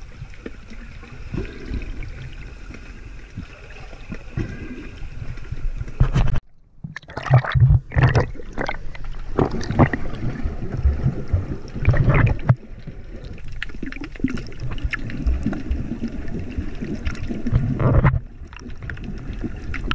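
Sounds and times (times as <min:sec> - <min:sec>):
water sloshing and gurgling: 0:00.0 - 0:19.9
splashes and knocks: 0:05.8 - 0:12.6, 0:13.6 - 0:19.1.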